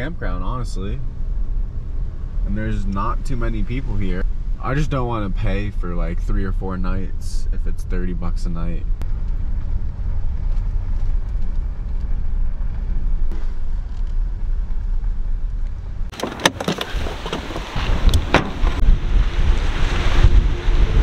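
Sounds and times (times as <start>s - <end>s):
car driving rumble inside cabin: 0.0s - 21.0s
wind buffeting microphone: 16.9s - 21.0s.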